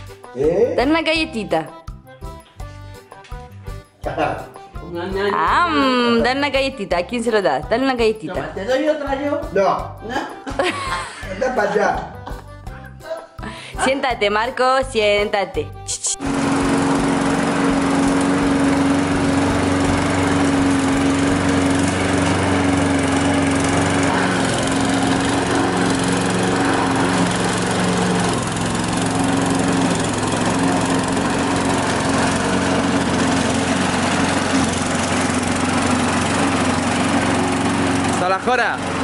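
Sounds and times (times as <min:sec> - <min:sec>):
lawn mower cutting grass: 0:16.2 - 0:39.0.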